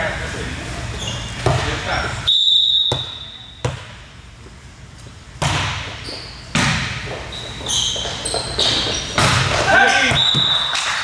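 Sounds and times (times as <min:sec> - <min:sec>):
sneakers squeaking on gym floor: 0:00.8 - 0:04.0, 0:05.4 - 0:10.8
volleyball hits echoing: 0:02.8 - 0:04.1, 0:05.4 - 0:07.2, 0:08.6 - 0:11.0.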